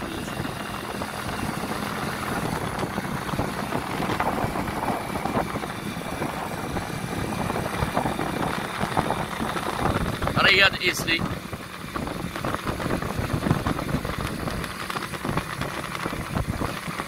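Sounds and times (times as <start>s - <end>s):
vehicle driving on road: 0.0s - 17.0s.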